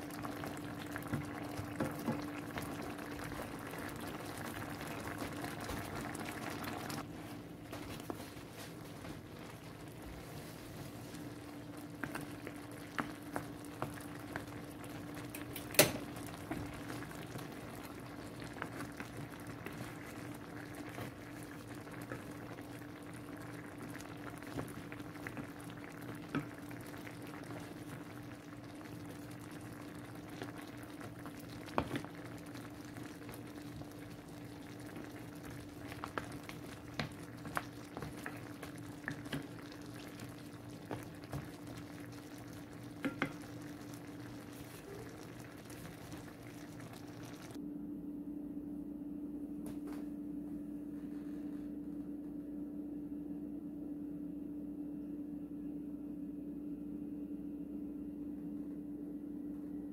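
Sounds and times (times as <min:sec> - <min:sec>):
sauce simmering and bubbling: 0:00.0 - 0:47.6
steady hum: 0:00.0 - 0:59.9.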